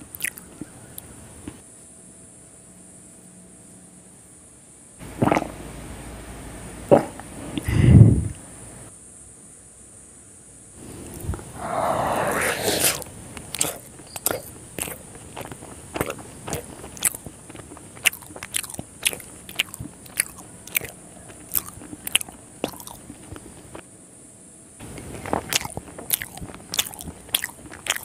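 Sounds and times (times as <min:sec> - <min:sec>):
chewing with lip smacks: 0:00.0 - 0:01.6, 0:12.8 - 0:23.8, 0:24.8 - 0:28.0
bite and slurp: 0:11.1 - 0:23.5, 0:24.9 - 0:28.0.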